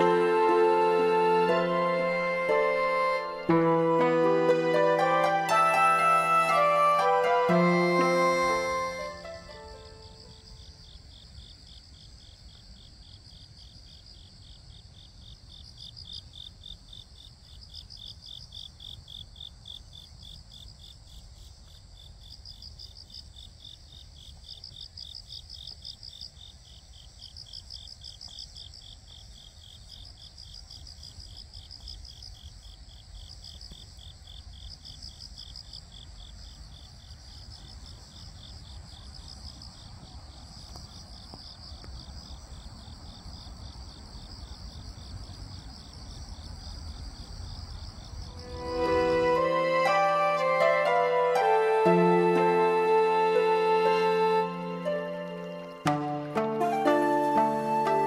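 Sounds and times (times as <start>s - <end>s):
higher cricket trill: 0.0s - 11.1s, 48.0s - 58.0s
crickets trilling: 9.2s - 49.5s.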